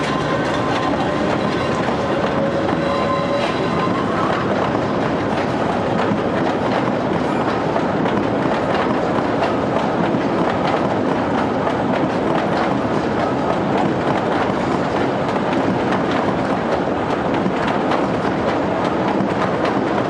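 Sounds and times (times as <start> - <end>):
train wheels rumbling on rail: 0.0 - 20.0
wheels clacking over rail joints: 0.0 - 20.0.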